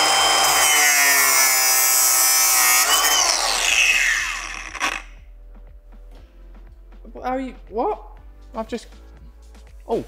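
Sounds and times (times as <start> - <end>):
power tool motor whining: 0.0 - 5.2.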